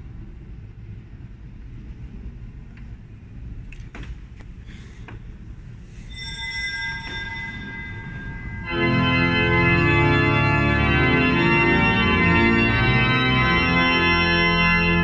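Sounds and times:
low room hum: 0:00.0 - 0:15.0
pipe organ high held notes: 0:06.1 - 0:15.0.

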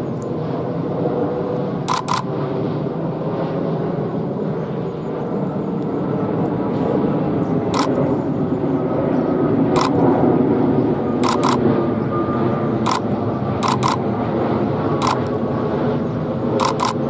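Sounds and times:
jet engine rumble: 0:00.0 - 0:17.0
camera shutter click: 0:01.9 - 0:02.3, 0:07.8 - 0:08.0, 0:09.8 - 0:10.0, 0:11.2 - 0:11.6, 0:13.6 - 0:14.0, 0:15.0 - 0:15.3, 0:16.6 - 0:17.0.

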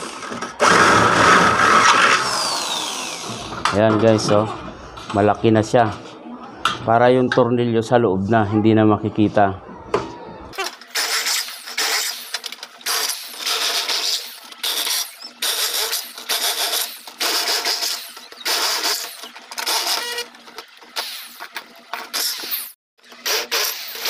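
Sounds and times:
electric drill boring through metal: 0:00.0 - 0:03.7, 0:10.8 - 0:20.3, 0:21.0 - 0:24.0.

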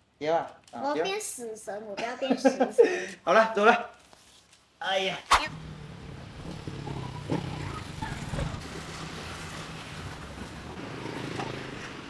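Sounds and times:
vehicle engine hum: 0:05.5 - 0:12.0.

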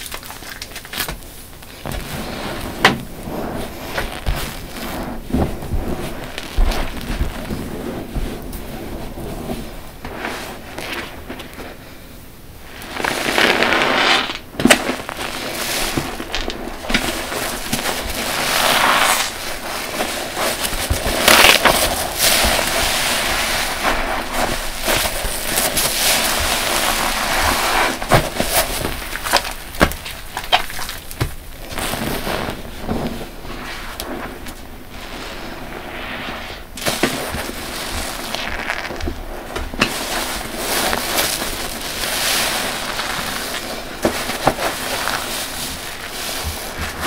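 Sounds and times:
wet sponge squelching: 0:00.0 - 0:12.0, 0:12.6 - 0:47.0
foam crackling and popping: 0:00.0 - 0:47.0.

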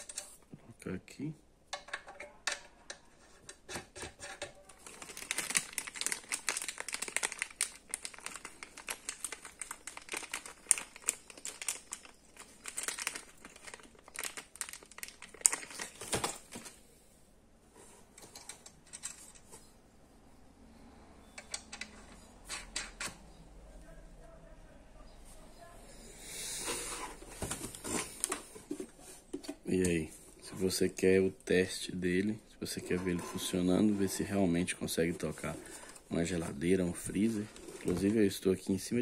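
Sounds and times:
plastic bag crinkling: 0:04.6 - 0:16.8, 0:32.1 - 0:39.0.

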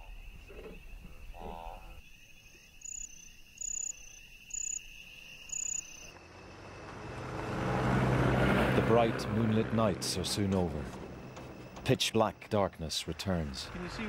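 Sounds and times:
cricket trill: 0:00.0 - 0:07.1.

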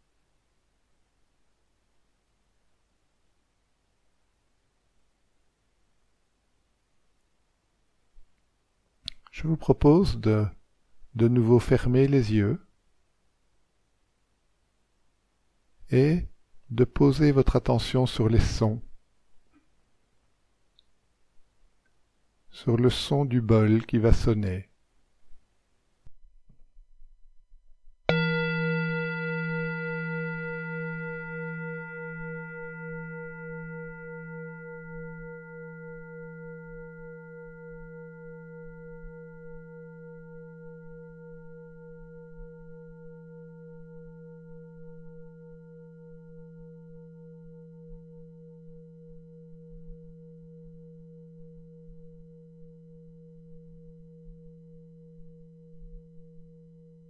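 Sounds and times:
singing bowl ringing: 0:28.1 - 0:57.0.

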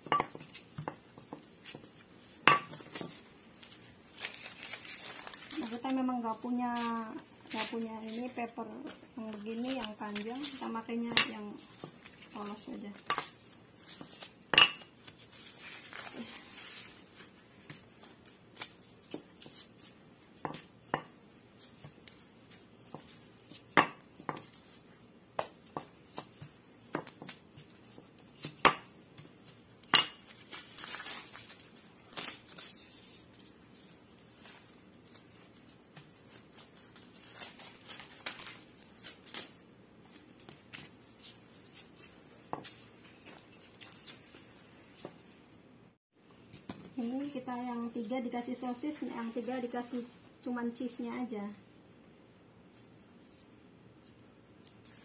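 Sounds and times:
soft rustling: 0:15.0 - 0:20.7.

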